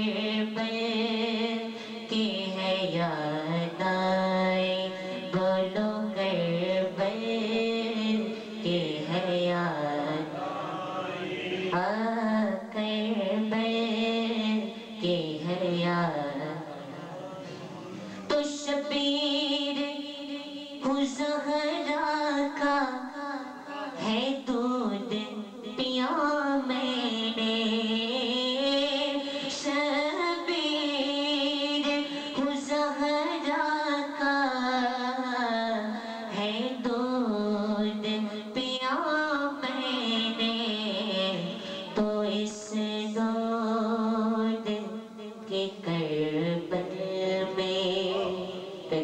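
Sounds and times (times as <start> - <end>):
singer breathing: 1.6 - 2.1, 4.9 - 5.3, 8.3 - 8.6
man singing into a microphone: 47.2 - 49.0.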